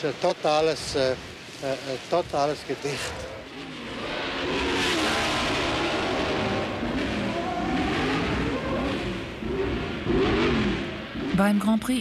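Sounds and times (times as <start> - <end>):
steady rushing noise: 0.0 - 11.4
racing car engines passing: 2.8 - 11.4.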